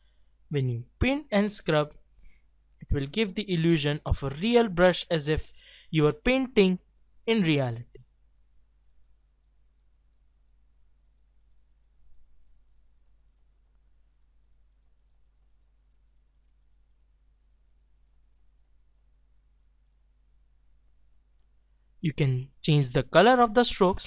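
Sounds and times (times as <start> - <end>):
faint high ticks: 8.8 - 18.9, 19.5 - 20.1.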